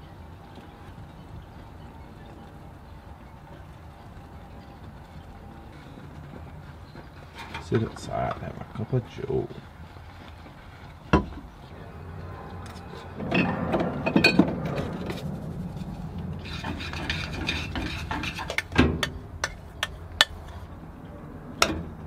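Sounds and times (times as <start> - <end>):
spoon scraping saucepan: 16.4 - 18.7.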